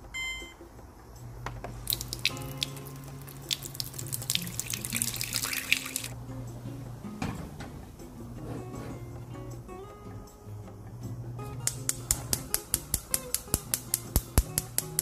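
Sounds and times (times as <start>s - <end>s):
background music: 0.0s - 15.0s
water pouring into a pot: 1.9s - 6.2s.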